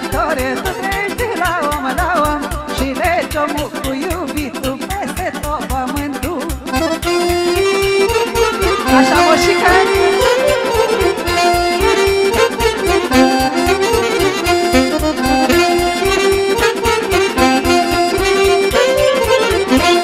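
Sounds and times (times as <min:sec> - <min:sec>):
accordion melody over fast beat: 0:00.0 - 0:20.0.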